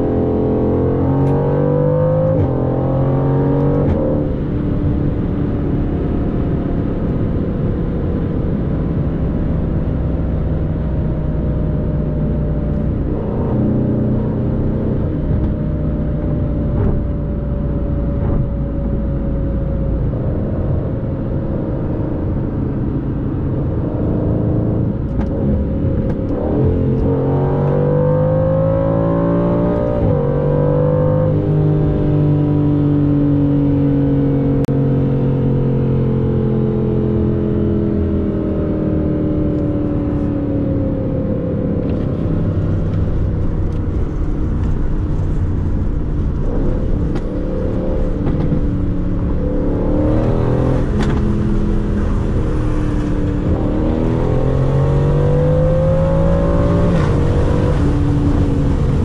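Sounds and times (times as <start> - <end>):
car engine revving with gear changes: 0.0 - 59.0
road noise: 0.0 - 59.0.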